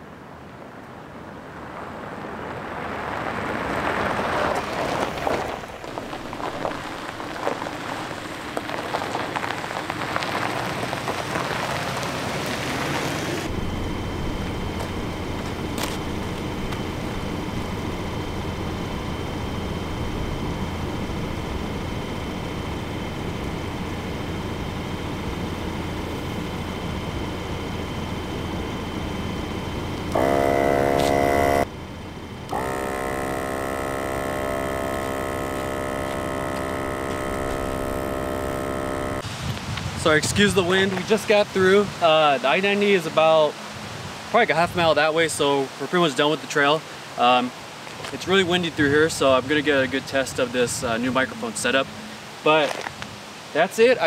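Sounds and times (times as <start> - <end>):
tyres crunching on gravel: 1.7 - 19.0, 29.9 - 31.7, 32.5 - 43.3, 47.7 - 51.8, 52.4 - 54.0
air compressor humming: 5.6 - 8.6, 13.0 - 39.3.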